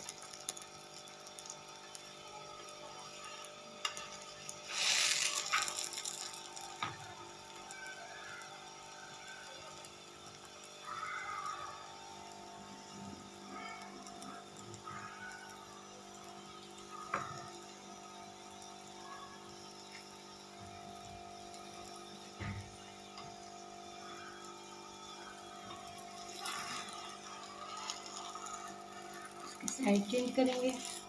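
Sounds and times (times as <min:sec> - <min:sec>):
flatbread sizzling in oil: 0:00.0 - 0:31.0
metal spatula scraping: 0:04.7 - 0:06.3.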